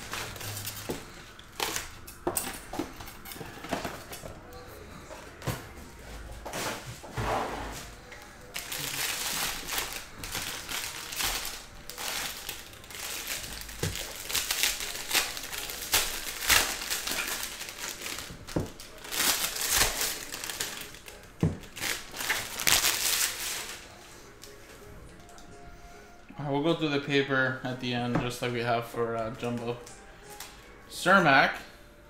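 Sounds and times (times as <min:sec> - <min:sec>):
foil wrappers crinkling: 0:00.0 - 0:05.5, 0:07.8 - 0:25.4.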